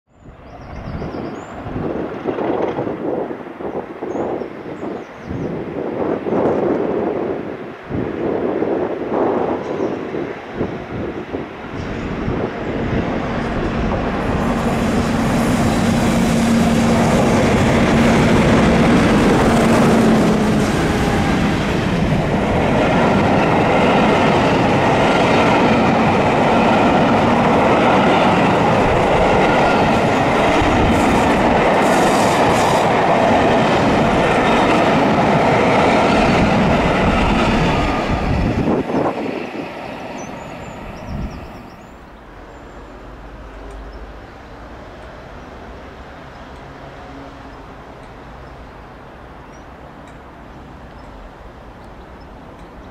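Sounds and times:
diesel locomotive engine: 5.6 - 52.9
train wheels clattering on rails: 11.7 - 41.8.

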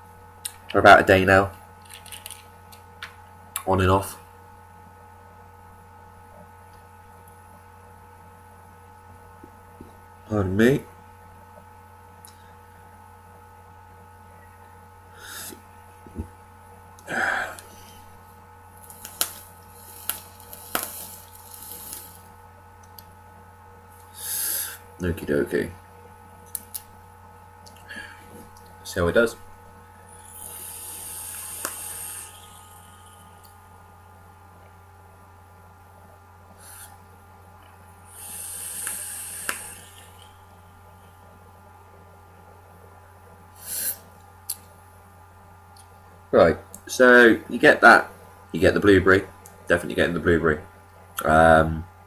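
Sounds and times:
faint exhaling breath: 15.1 - 15.6, 24.1 - 24.9, 30.1 - 33.4, 38.1 - 40.5
hiss of air through atomizer: 15.2 - 15.6, 19.0 - 22.3, 24.1 - 24.8, 30.1 - 33.4, 36.6 - 37.0, 38.1 - 40.4, 43.5 - 44.1
breathy rush of air: 17.1 - 18.2, 30.0 - 33.4, 38.1 - 40.5.

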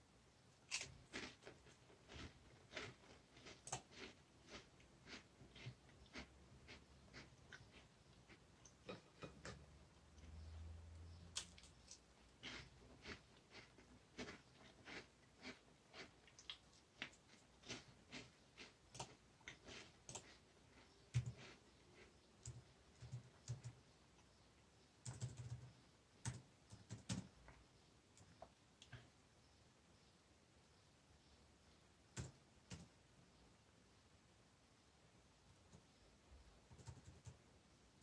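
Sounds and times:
crackers being chewed: 0.7 - 9.0, 11.4 - 23.6.

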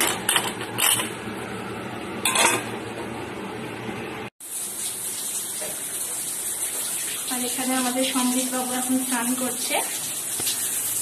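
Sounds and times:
metal cookware clatter: 2.2 - 2.8
water running: 4.4 - 11.0.

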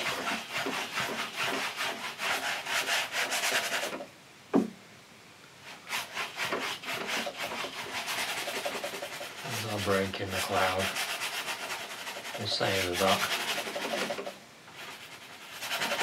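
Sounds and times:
paintbrush scrubbing on canvas: 0.0 - 4.1, 5.6 - 16.0
sharp knock: 4.5 - 4.8.

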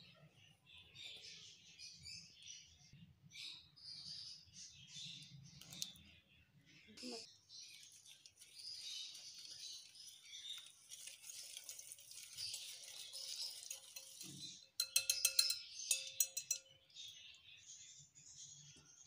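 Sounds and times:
whisk beating batter: 7.8 - 16.6
whisk clinking on glass bowl: 10.5 - 17.2.

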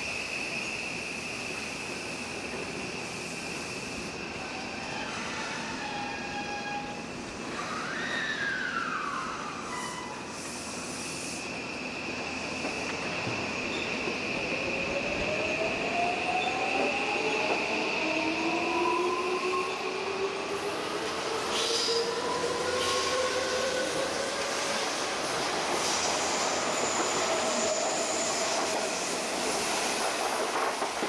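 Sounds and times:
train wheels clattering on rails: 25.2 - 31.0.

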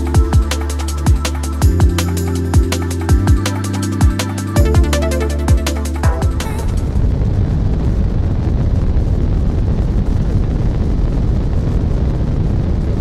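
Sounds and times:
drum and bass music: 0.0 - 7.0.

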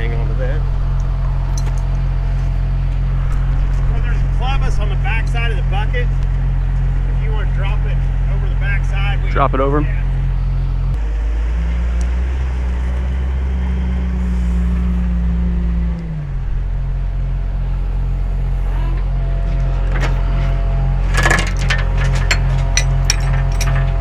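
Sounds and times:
diesel engine running: 0.0 - 24.0
sharp metallic clinks: 22.2 - 23.9.

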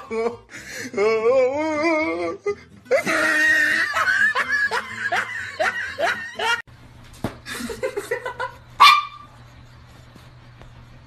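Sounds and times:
music: 0.0 - 6.6
people laughing: 2.9 - 6.6, 7.4 - 8.7.

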